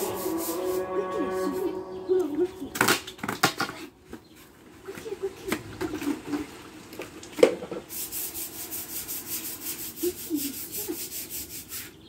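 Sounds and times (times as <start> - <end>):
hand scrubbing on stone: 0.0 - 1.8, 7.9 - 12.0.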